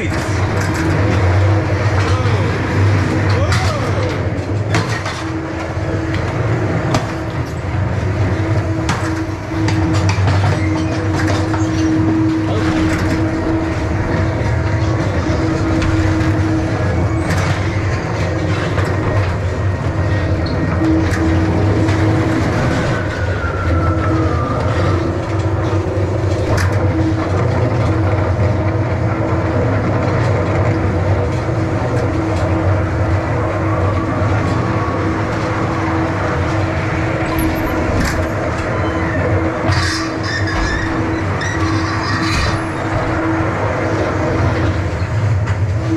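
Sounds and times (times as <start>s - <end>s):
ride car rumbling on track: 0.0s - 45.9s.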